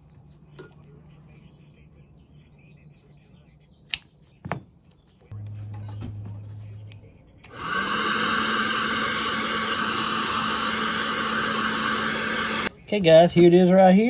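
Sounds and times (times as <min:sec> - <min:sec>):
low steady hum: 0:00.0 - 0:07.7
hot-air blower running: 0:07.4 - 0:12.7.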